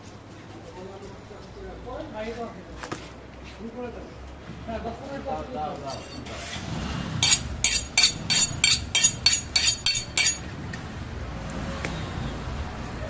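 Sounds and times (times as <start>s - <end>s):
knife honing against cleaver blade: 7.2s - 10.5s.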